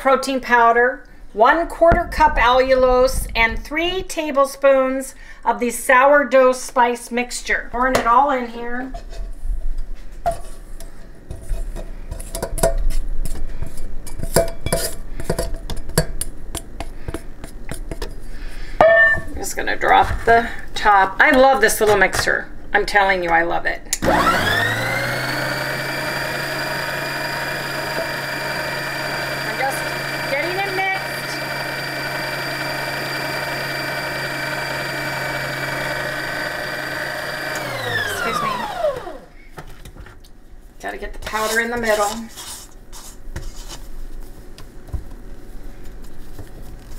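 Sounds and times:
bowl clinking on metal bowl: 0:18.8 - 0:19.3
stand mixer motor whining: 0:24.0 - 0:39.3.

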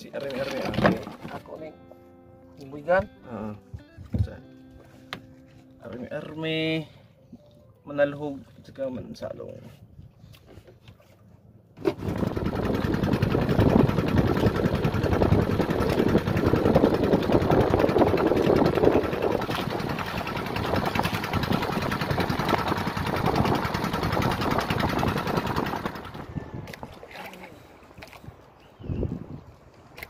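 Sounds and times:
small boat engine putter: 0:00.0 - 0:01.7, 0:09.8 - 0:28.5.

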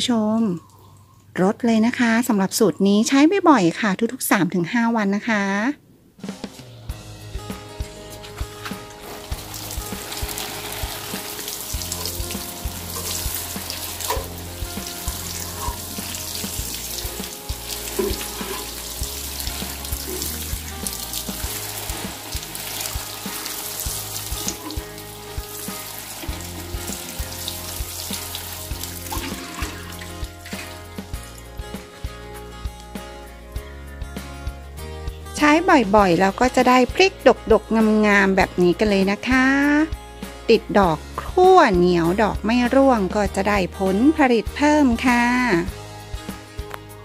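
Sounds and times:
background music: 0:06.2 - 0:47.0
water sprinkling on leaves: 0:08.2 - 0:31.3.

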